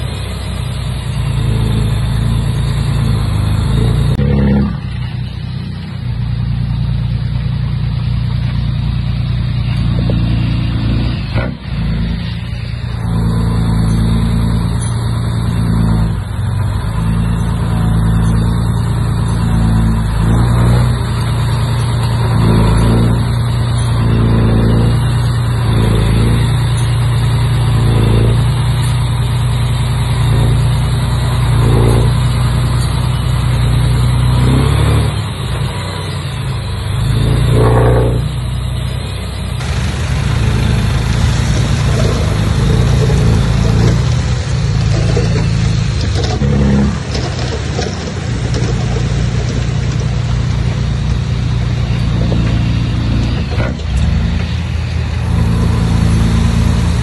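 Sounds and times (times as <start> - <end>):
bulldozer diesel engine running: 0.0 - 57.0.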